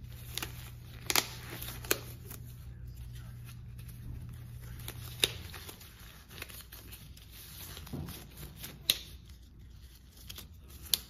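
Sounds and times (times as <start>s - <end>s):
rustling of exam gloves: 0.0s - 11.0s.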